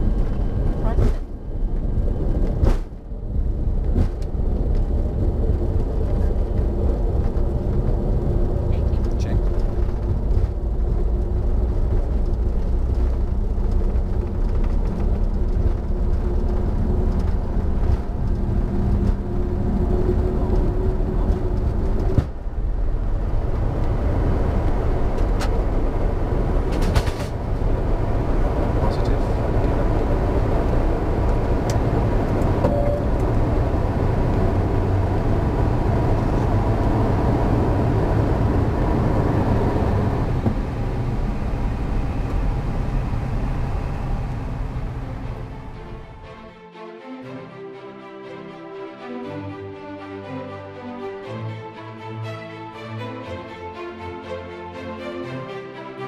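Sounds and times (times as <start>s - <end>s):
jet engine and wheels rumbling: 0.0s - 46.8s.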